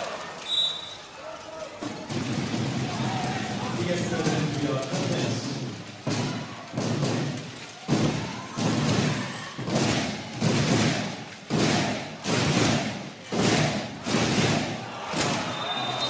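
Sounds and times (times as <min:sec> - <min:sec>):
loud rhythmic thuds: 0:01.7 - 0:16.0
crowd chanting: 0:08.0 - 0:16.0.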